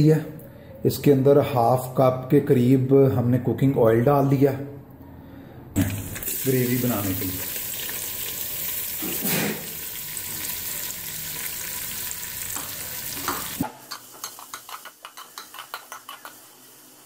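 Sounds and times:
onions sizzling in hot oil: 0:05.9 - 0:17.0.

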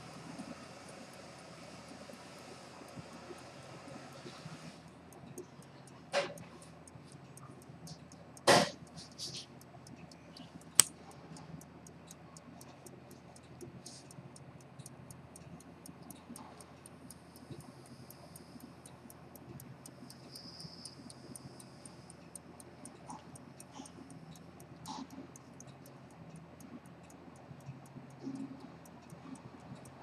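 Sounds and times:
pocket watch ticking: 0:00.0 - 0:30.0
sharp click: 0:08.1 - 0:09.5, 0:10.3 - 0:11.0.

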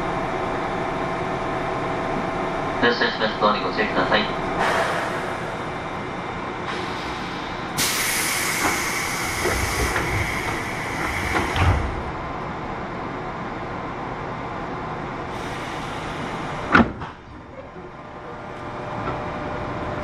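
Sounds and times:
train low noise: 0:00.0 - 0:20.0
compressed air hissing: 0:04.6 - 0:05.8, 0:06.7 - 0:11.9.

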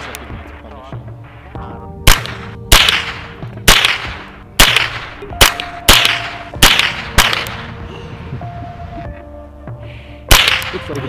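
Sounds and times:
rifle shots with echo: 0:02.0 - 0:07.8, 0:10.3 - 0:10.9.

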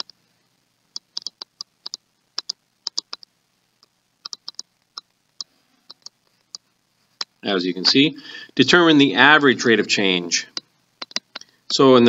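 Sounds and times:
stylus clicking on tablet screen: 0:00.9 - 0:03.3, 0:04.2 - 0:06.6, 0:10.6 - 0:11.5.

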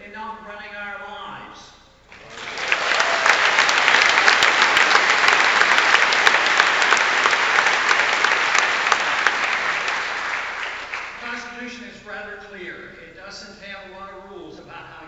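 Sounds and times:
large audience applauding: 0:02.1 - 0:11.4.

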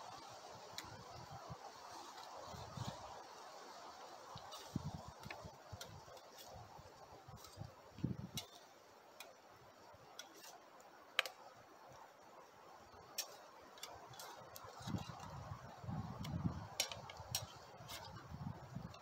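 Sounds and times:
faint hiss: 0:00.0 - 0:19.0
fork clicking in metal skillet: 0:16.8 - 0:17.6.

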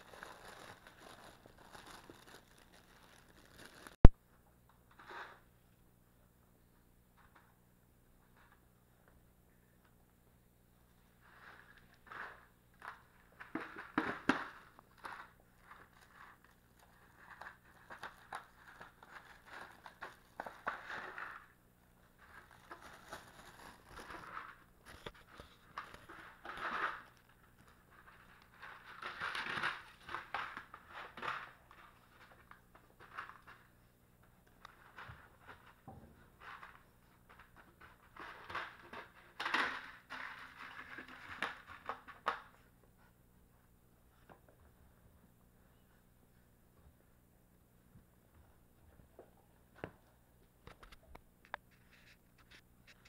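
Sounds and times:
puppies rustling and scraping: 0:51.6 - 0:53.0.

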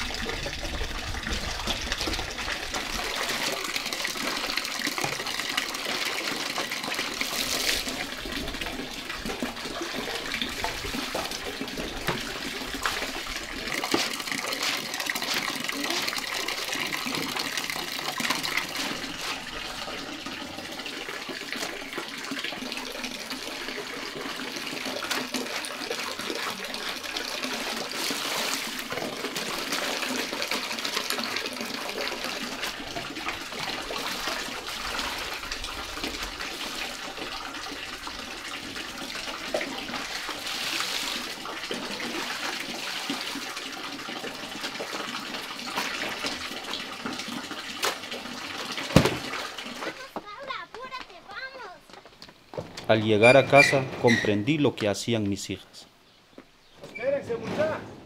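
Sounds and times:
water splashing and sloshing: 0:00.0 - 0:54.6
scrubbing and slapping wet cloth: 0:01.7 - 0:19.7, 0:38.4 - 0:51.6.

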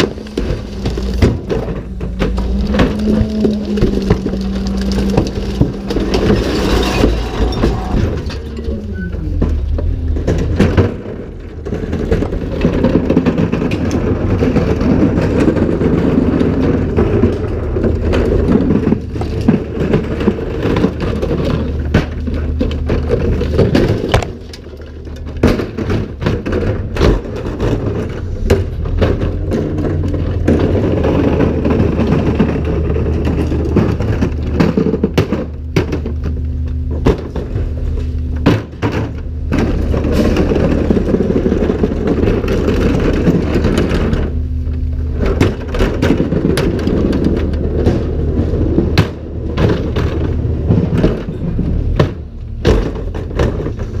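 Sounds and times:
carts banging against tipper arms: 0:00.0 - 0:54.0
refuse clattering into hopper: 0:00.0 - 0:54.0
truck engine and hydraulics running: 0:00.0 - 0:54.0.

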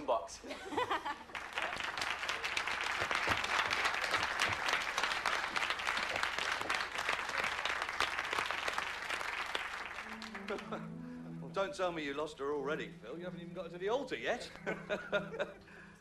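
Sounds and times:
audience applauding: 0:01.2 - 0:10.9.

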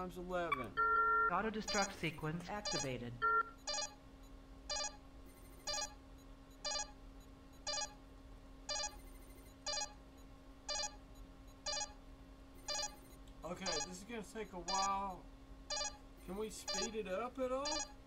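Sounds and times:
steady low hum: 0:00.0 - 0:18.0
short electronic beeps: 0:01.2 - 0:02.0, 0:02.6 - 0:08.0, 0:08.7 - 0:12.0, 0:12.6 - 0:14.0, 0:14.7 - 0:15.0, 0:15.7 - 0:16.0, 0:16.7 - 0:17.0, 0:17.6 - 0:18.0.

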